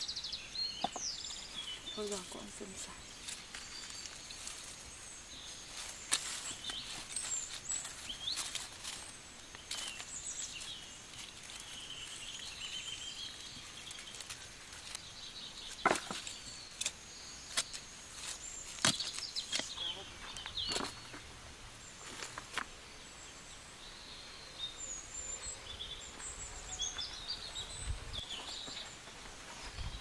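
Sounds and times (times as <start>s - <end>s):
birds chirping and whistling: 0.0s - 21.3s
rural outdoor ambience: 0.0s - 30.0s
sharp knocks and rustles: 15.6s - 21.3s.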